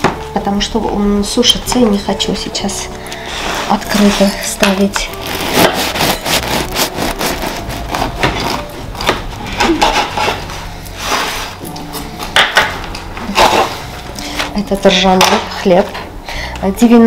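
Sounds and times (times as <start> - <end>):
knife sawing through bread: 5.1 - 8.7.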